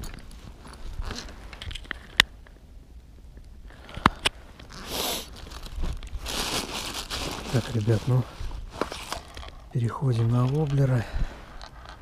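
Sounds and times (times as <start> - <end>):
jacket rustling: 4.6 - 9.7.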